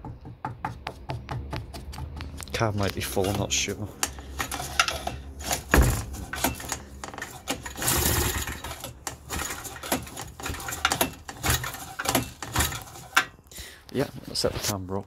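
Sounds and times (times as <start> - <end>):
metal parts clattering: 2.8 - 13.4.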